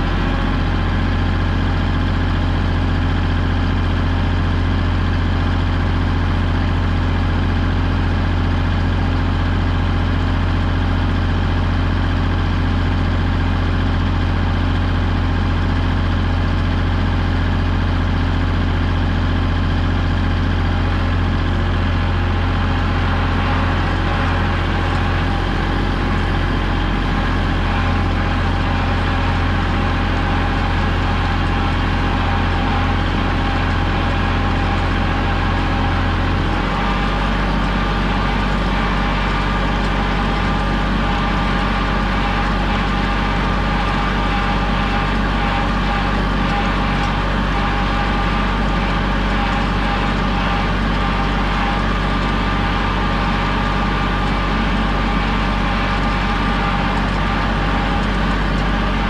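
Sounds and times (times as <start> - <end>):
steady whine: 0.0 - 59.0
tractor diesel engine running: 0.0 - 59.0.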